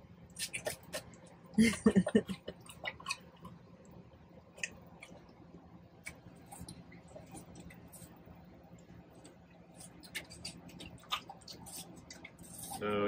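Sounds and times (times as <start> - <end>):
faint low hum: 0.0 - 13.0.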